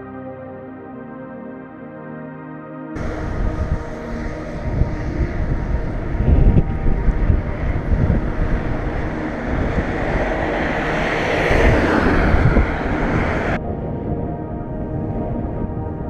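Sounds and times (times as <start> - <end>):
car driving past: 3.0 - 13.6
wind buffeting microphone: 3.0 - 16.0.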